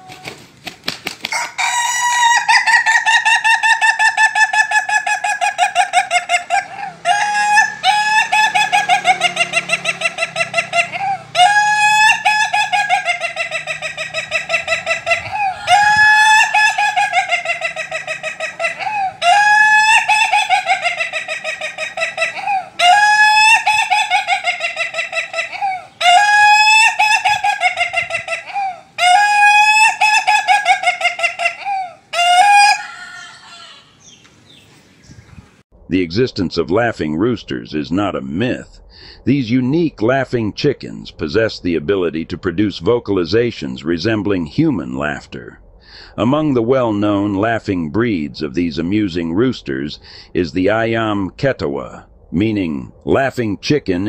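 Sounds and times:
rooster crowing in stuttering syllables: 0:32.2 - 0:34.0.

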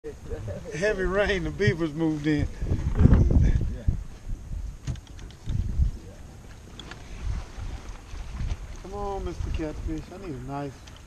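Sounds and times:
wind buffeting microphone: 0:00.1 - 0:11.0
faint light ticks: 0:10.8 - 0:11.0.

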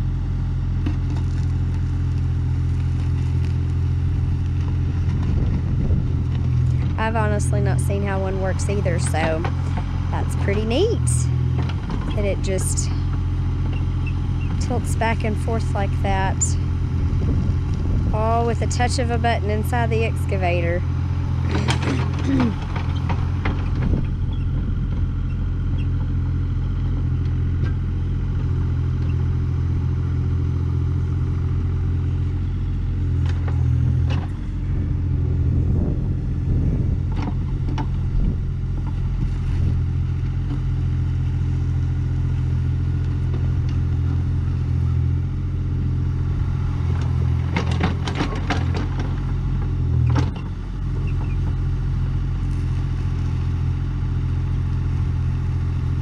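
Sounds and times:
excavator diesel engine running: 0:00.0 - 0:56.0
bucket clanking and scraping: 0:21.5 - 0:23.2.

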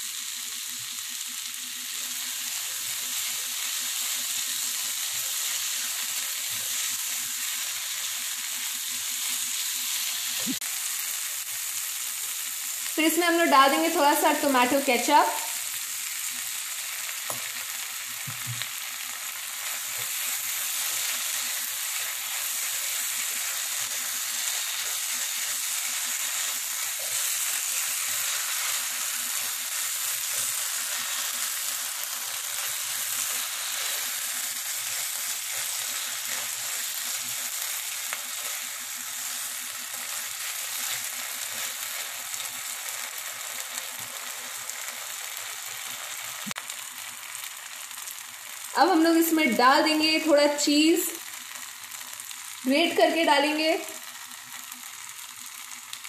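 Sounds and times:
vegetables sizzling in frying pan: 0:00.0 - 0:56.0
spatula stirring in pan: 0:16.8 - 0:46.9.

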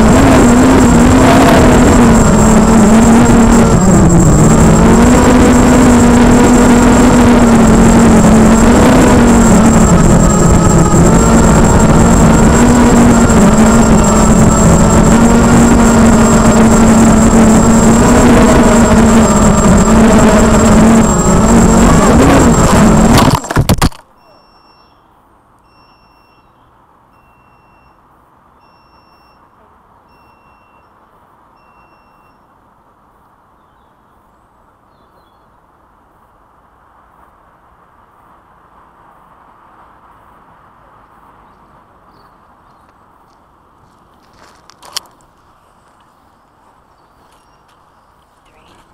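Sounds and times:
drone crash: 0:00.0 - 0:24.0
drone motors whining: 0:00.0 - 0:24.9
faint electronic beep: 0:19.1 - 0:32.6, 0:47.0 - 0:48.9.

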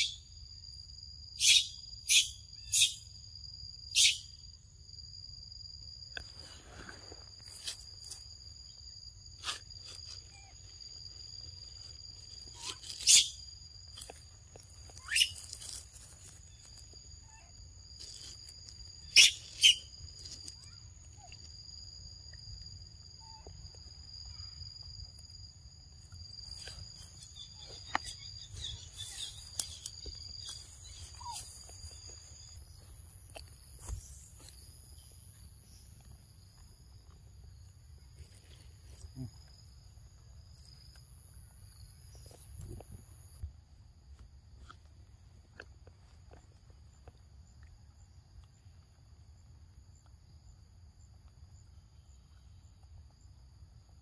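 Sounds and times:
insects droning: 0:00.0 - 0:54.0
sharp high squeaks: 0:12.4 - 0:13.5, 0:14.9 - 0:16.0, 0:19.0 - 0:20.8, 0:26.6 - 0:31.6.

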